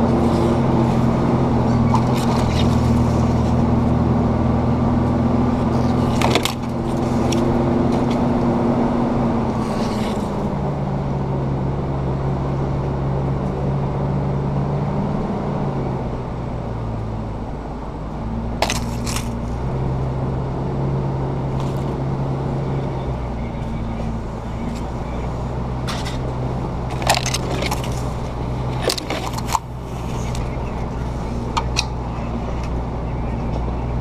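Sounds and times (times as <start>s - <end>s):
truck engine running: 0.0s - 34.0s
body and gear rattles: 26.9s - 30.4s.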